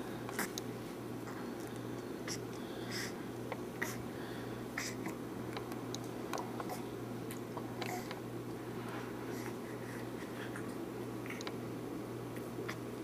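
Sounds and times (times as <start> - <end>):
low hum and hiss: 0.0 - 13.0.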